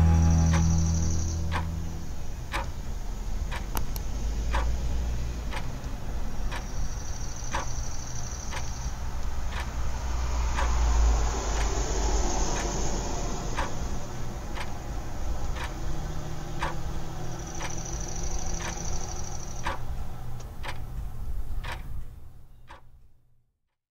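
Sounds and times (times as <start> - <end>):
brief high tone: 0.0 - 2.4
low drone and hiss: 0.0 - 21.6
regular ticks: 0.2 - 23.1.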